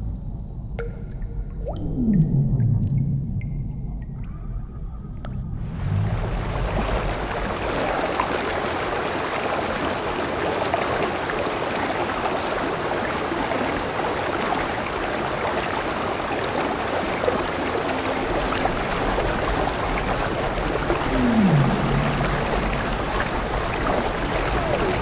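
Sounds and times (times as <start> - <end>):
heavy rain on water: 5.7 - 25.0.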